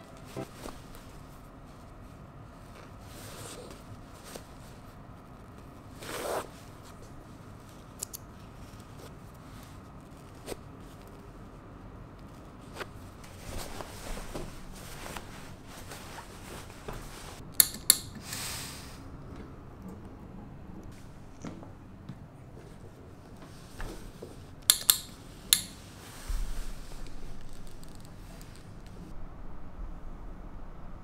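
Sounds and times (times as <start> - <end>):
cloth rustling: 12.5 - 17.4, 25.2 - 29.2
scissors snipping thread: 17.6 - 18.2, 24.7 - 25.8.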